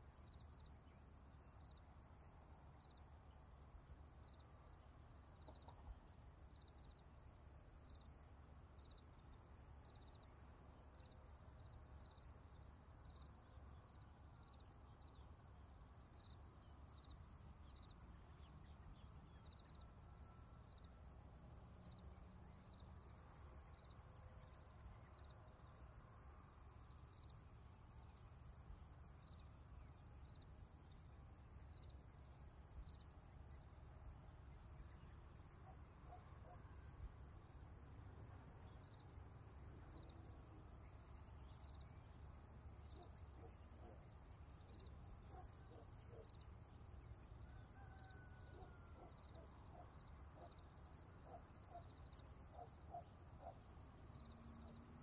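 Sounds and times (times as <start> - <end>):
insect chirping: 0.0 - 55.0
insects trilling: 0.0 - 55.0.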